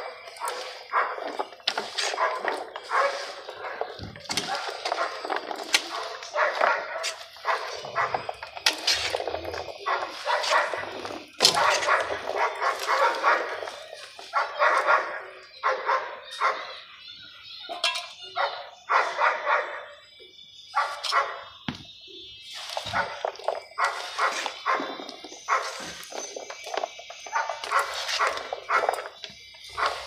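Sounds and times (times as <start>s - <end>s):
dog barking: 0.0s - 1.3s, 2.0s - 5.3s, 5.9s - 8.4s, 9.8s - 16.8s, 18.3s - 20.0s, 20.7s - 21.5s, 22.9s - 25.8s, 27.3s - 29.0s.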